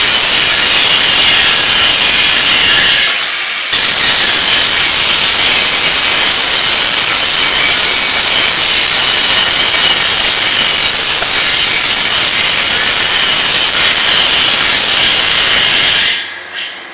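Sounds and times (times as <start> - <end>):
angle grinder grinding steel: 0.0 - 16.2.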